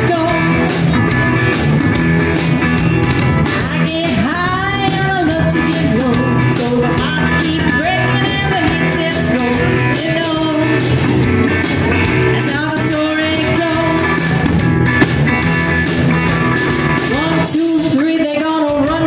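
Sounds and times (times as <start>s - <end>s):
person singing: 0.0s - 0.7s, 3.5s - 10.9s, 12.2s - 14.5s, 17.1s - 19.0s
rock band playing: 0.0s - 19.0s.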